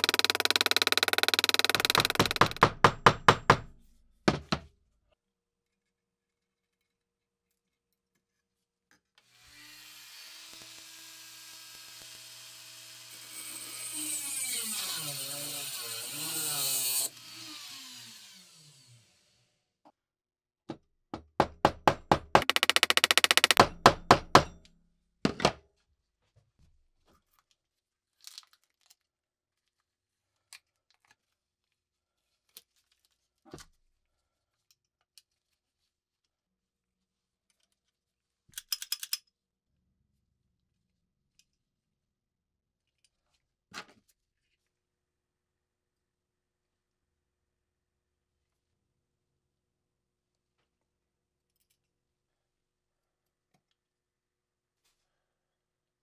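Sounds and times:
small power tool running: 0:00.0 - 0:02.7, 0:09.3 - 0:19.5, 0:22.3 - 0:23.7
hammer striking metal: 0:21.4 - 0:24.7.

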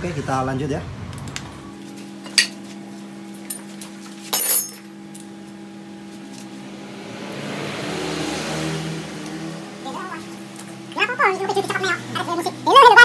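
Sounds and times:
steady low hum: 0:00.0 - 0:07.8
metal hand tools clinking: 0:04.3 - 0:04.9.

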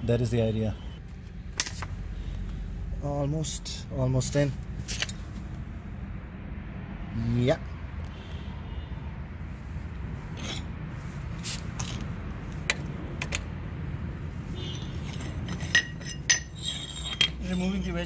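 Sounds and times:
metallic clinks and taps: 0:14.6 - 0:17.4.

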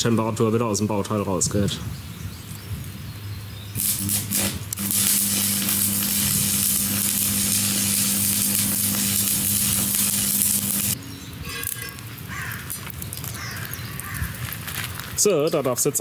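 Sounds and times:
arc welding crackling: 0:03.7 - 0:16.0.

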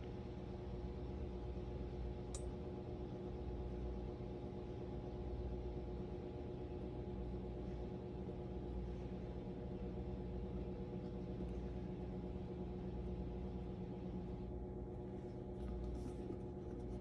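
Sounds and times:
steady low hum: 0:00.0 - 0:17.0
paintbrush scratching: 0:15.6 - 0:17.0.

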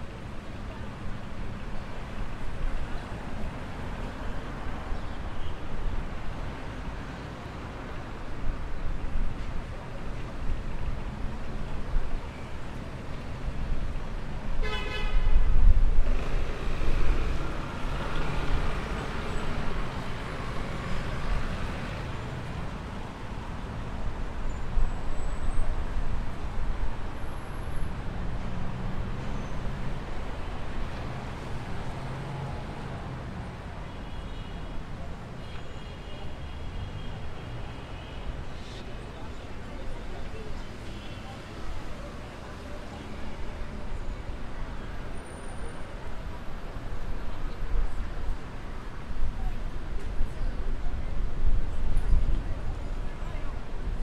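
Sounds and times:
traffic rumble: 0:00.0 - 0:54.0
car horn honk: 0:14.6 - 0:15.3.

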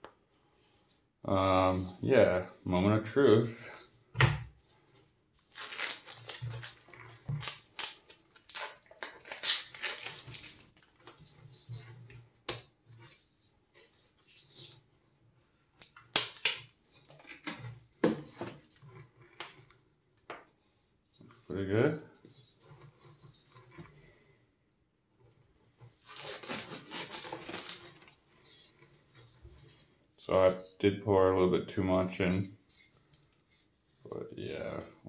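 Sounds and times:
tape and plastic crinkling: 0:05.4 - 0:11.4, 0:25.9 - 0:28.5
foam scraping: 0:26.0 - 0:30.6.

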